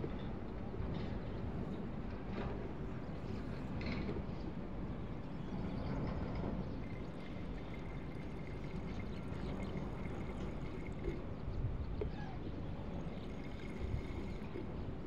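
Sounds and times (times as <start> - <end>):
liquid trickling into a bottle: 6.2 - 11.6, 12.8 - 15.0.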